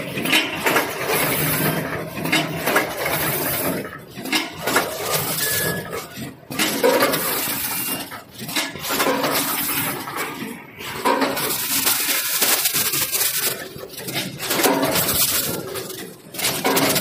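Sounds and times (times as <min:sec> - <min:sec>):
packing machine clattering and hissing: 0:00.0 - 0:17.0.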